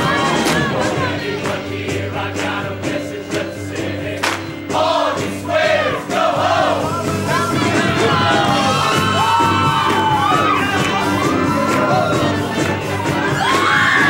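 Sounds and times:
choir singing: 0.0s - 9.7s
live band with bass and drums: 4.2s - 14.0s.

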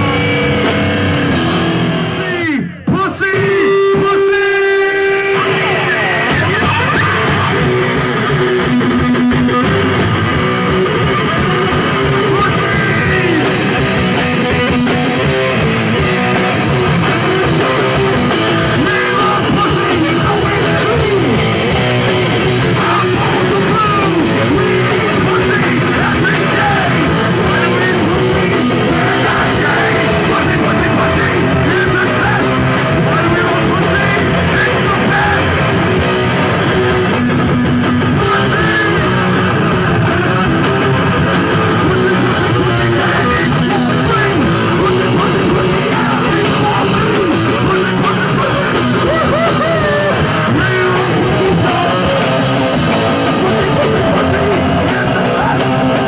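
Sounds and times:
electric guitar: 0.0s - 56.0s
punk rock band playing: 0.0s - 56.0s.

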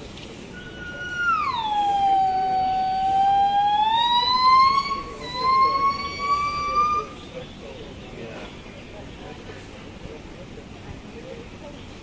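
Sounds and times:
gibbon singing: 0.6s - 7.2s.

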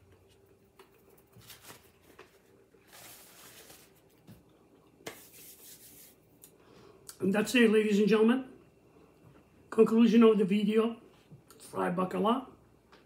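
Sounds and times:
soft chewing: 0.0s - 2.7s
paper napkin rustling: 1.2s - 4.3s, 5.1s - 6.2s.

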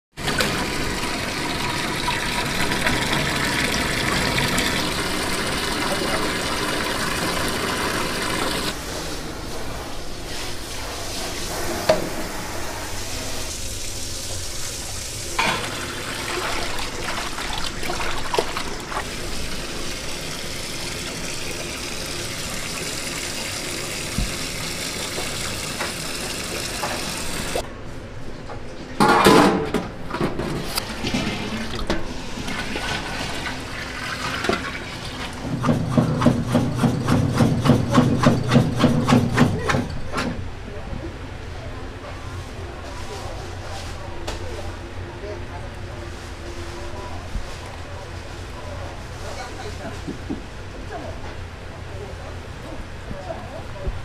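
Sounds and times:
tap water gushing into sink: 0.2s - 8.8s, 13.6s - 27.6s, 31.0s - 35.6s
water splashing: 15.7s - 22.0s.

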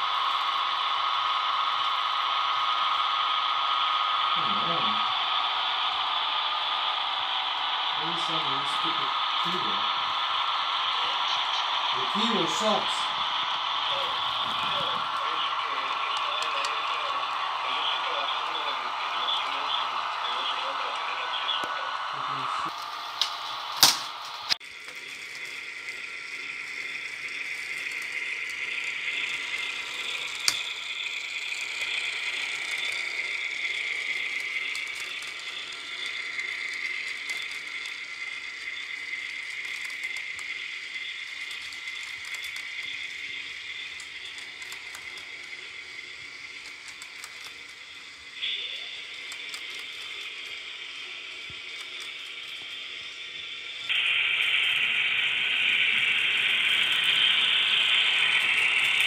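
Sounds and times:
model train wheels rattling on rails: 22.3s - 48.4s, 49.0s - 53.9s.

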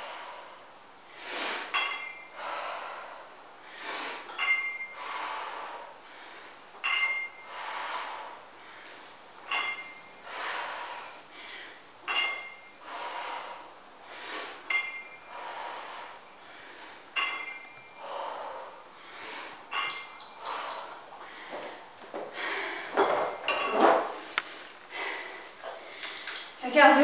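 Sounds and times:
hard rhythmic breathing: 0.0s - 26.6s
dumbbell plates clinking: 1.6s - 2.4s, 4.1s - 5.5s, 6.7s - 7.8s, 9.4s - 10.3s, 12.0s - 12.8s, 14.4s - 15.4s, 16.8s - 18.2s, 19.2s - 26.8s.

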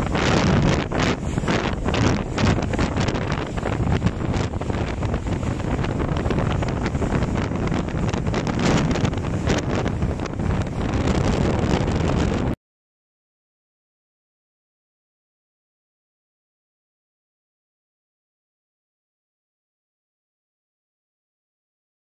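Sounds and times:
water rushing along hull: 0.0s - 12.6s
wind buffeting microphone: 0.0s - 12.6s.

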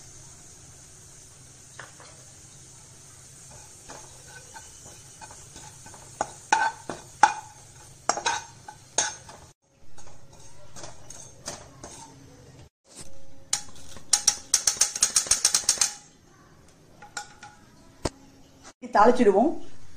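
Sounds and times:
spatula scraping pan: 3.4s - 16.0s.

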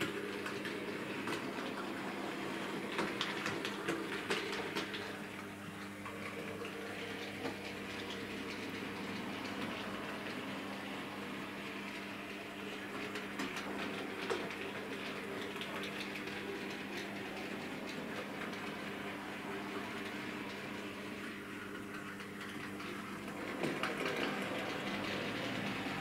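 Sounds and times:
model train wheels clicking: 22.4s - 26.0s.

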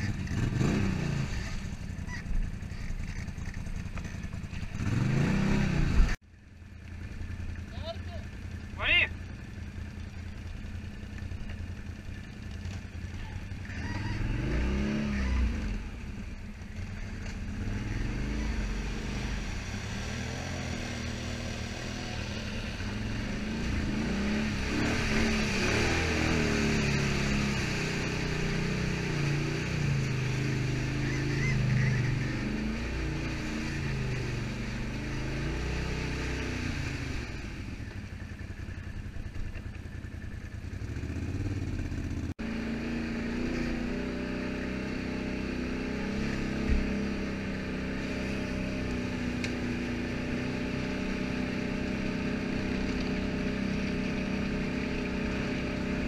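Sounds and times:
quad bike engine revving: 0.0s - 6.2s, 7.5s - 56.0s.

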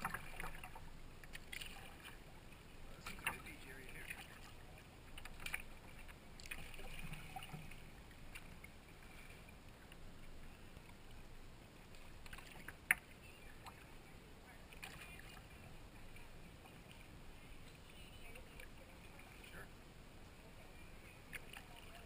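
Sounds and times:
paddle splashes and drips: 0.0s - 22.0s.

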